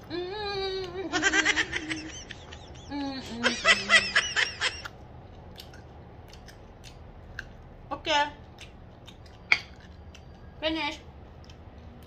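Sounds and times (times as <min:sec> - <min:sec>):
woman giggling: 0:00.1 - 0:04.9.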